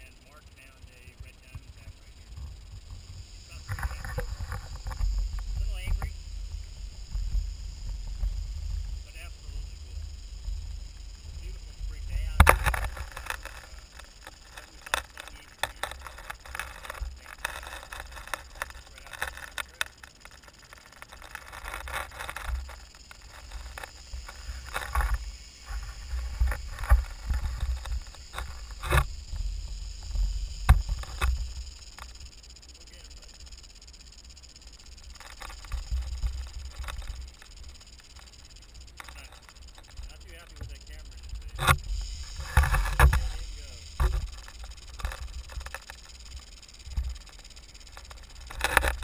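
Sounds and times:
rattlesnake rattling: 0.0 - 49.0
wind rumble on microphone: 1.2 - 15.0
sharp clicks and scrapes: 2.3 - 49.0.

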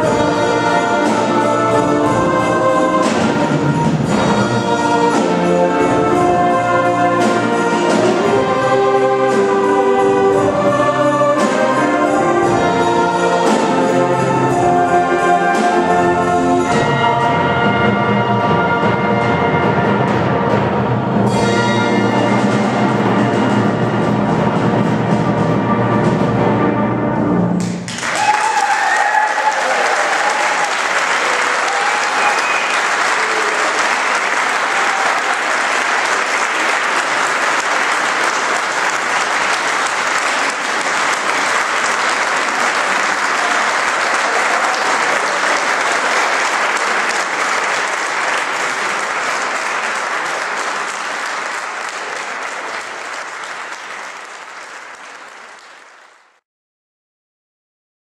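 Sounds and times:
audience applauding: 27.6 - 56.4.

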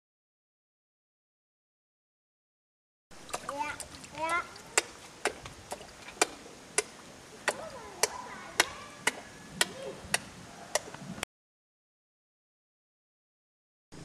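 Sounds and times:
hand tapping water surface: 3.2 - 10.9.

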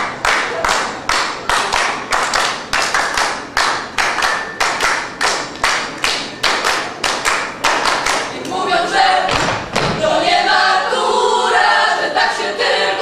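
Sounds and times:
women clapping in unison: 0.0 - 8.3.

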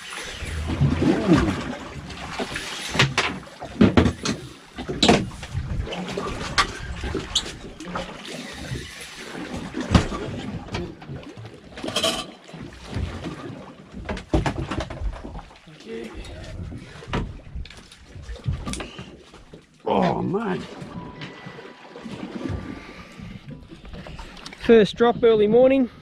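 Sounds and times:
water slapping boat hull: 0.0 - 26.0.

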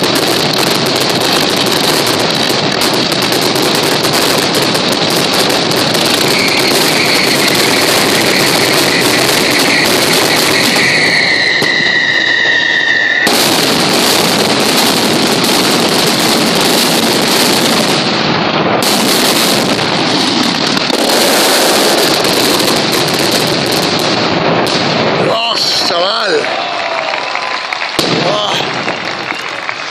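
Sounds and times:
firecrackers barrage: 0.0 - 29.9
high whistle: 6.3 - 13.3.

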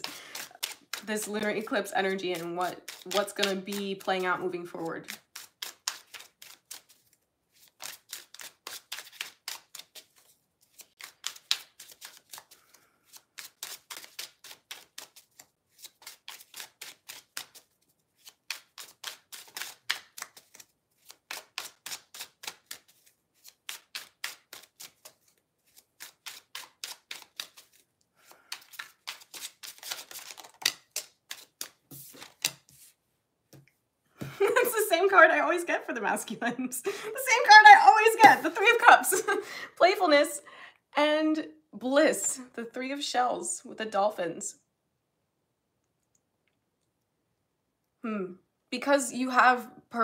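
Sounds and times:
cards being shuffled: 0.0 - 34.7.

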